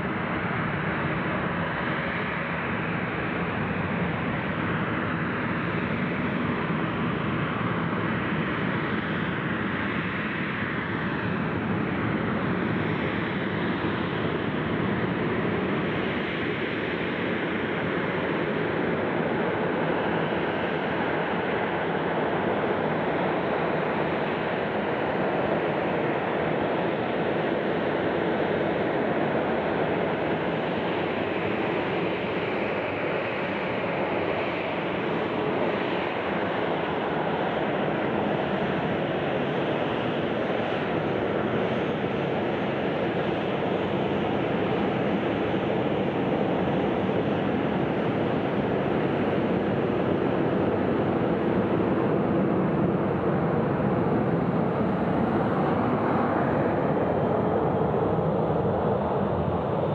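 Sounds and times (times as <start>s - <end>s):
jet engines rushing: 36.8s - 59.9s.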